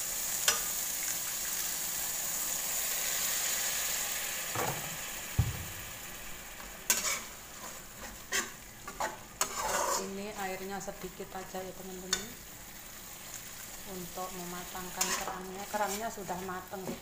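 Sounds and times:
paste sizzling in a wok: 0.0s - 17.0s
metal spatula scraping a wok: 6.9s - 10.2s, 14.9s - 16.2s.

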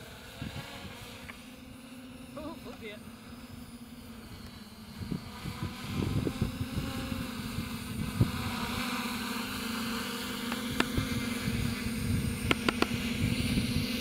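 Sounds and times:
drone propellers humming: 0.0s - 14.0s
wind buffeting microphone: 4.2s - 9.0s, 10.5s - 14.0s.

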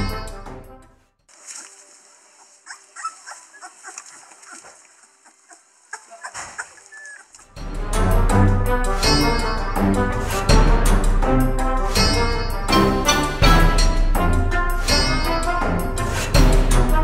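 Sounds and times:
background music: 0.0s - 3.8s, 7.5s - 17.0s
puppies squeaking and grunting: 2.4s - 7.6s
clicks of mouths and paws: 3.0s - 7.6s.

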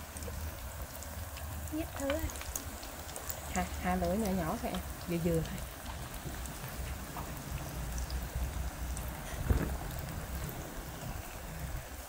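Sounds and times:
hot oil sizzling: 0.0s - 12.0s
low rumble: 4.6s - 12.0s
thump: 9.4s - 9.8s.

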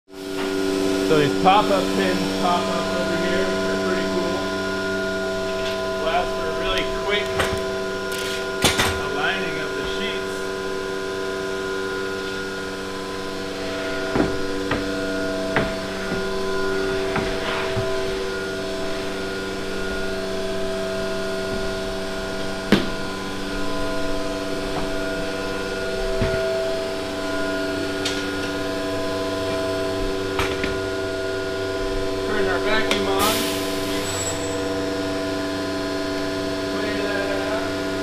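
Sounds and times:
steady machine hum: 0.1s - 38.0s.

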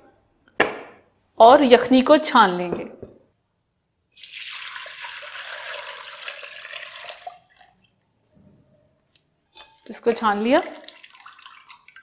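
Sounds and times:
liquid pouring through a strainer: 4.2s - 8.2s, 10.0s - 12.0s.

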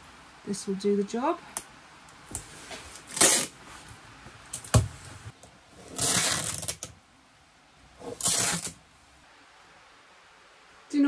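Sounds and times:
sticky tape pulled off roll: 3.0s - 3.6s, 5.8s - 6.9s, 8.0s - 8.8s.

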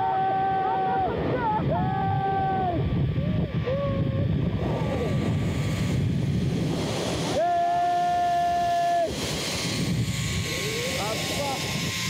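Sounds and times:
person shouting: 0.0s - 5.0s, 7.4s - 9.1s
wind rushing over microphone: 0.0s - 12.0s.

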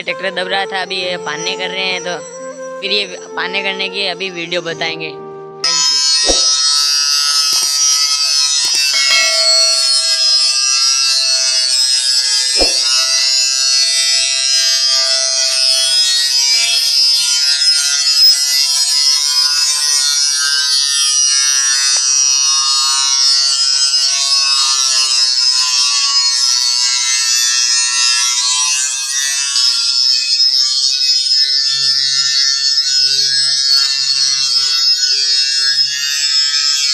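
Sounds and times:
angle grinder grinding steel: 5.6s - 19.8s.

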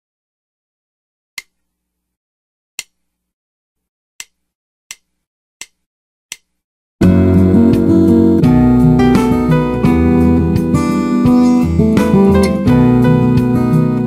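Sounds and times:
backing track music: 7.0s - 14.0s.

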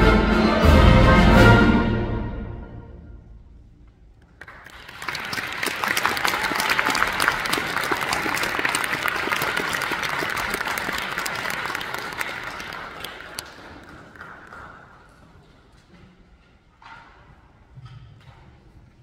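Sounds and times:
audience applauding: 4.2s - 15.2s.

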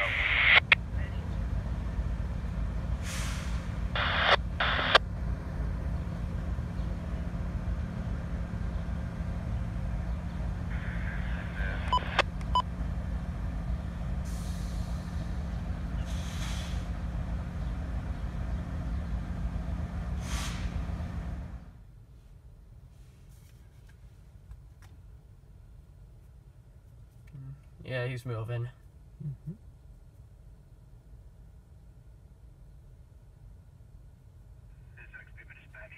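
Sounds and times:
diesel locomotives idling: 0.0s - 22.0s, 30.5s - 35.9s
air hissing: 3.0s - 5.0s, 14.2s - 15.3s, 16.0s - 16.9s, 20.2s - 20.8s.

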